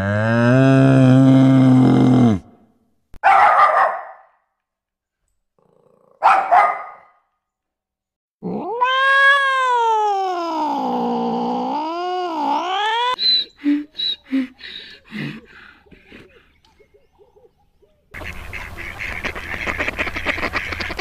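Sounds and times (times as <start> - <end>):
dog barking: 3.2 - 4.4, 6.2 - 7.2
cat meowing: 8.6 - 10.4.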